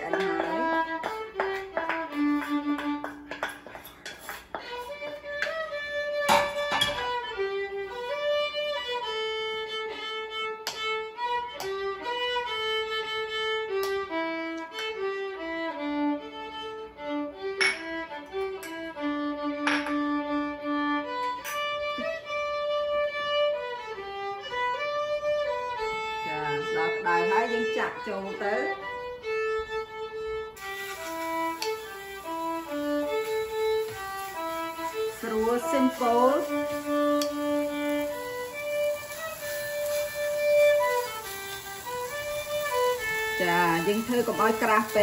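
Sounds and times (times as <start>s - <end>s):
slow violin melody: 0.0s - 45.0s.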